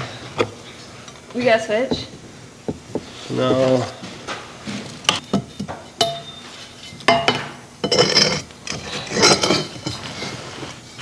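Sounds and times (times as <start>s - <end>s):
hand tools clinking on metal: 5.3s - 6.4s
metal scraping: 7.8s - 11.0s.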